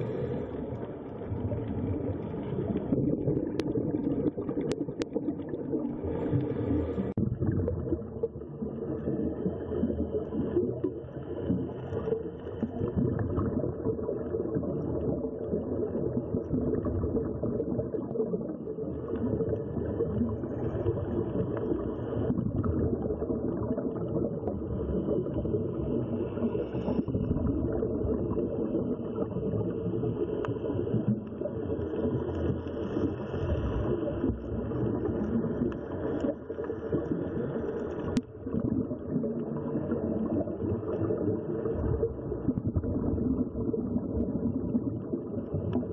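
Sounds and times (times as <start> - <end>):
muffled underwater rumble: 0.0 - 45.9.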